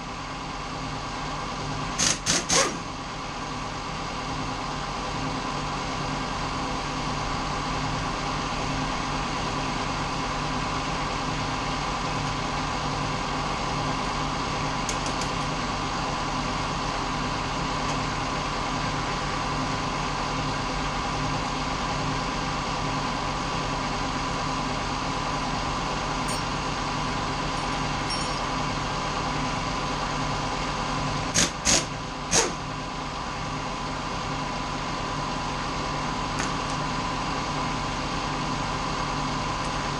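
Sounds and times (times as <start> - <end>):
metal parts clinking: 26.2 - 26.6, 27.6 - 28.5.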